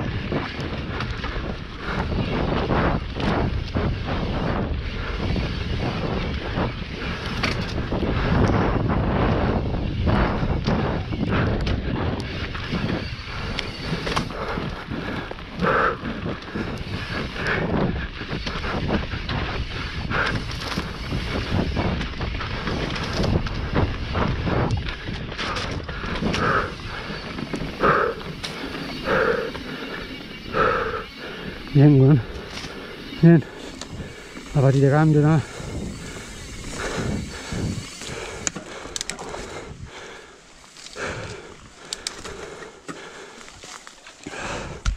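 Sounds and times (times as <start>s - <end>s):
tyres rumbling on dirt: 0.0s - 42.6s
wind buffeting microphone: 0.0s - 43.3s
bike chain and frame rattling: 0.0s - 44.8s.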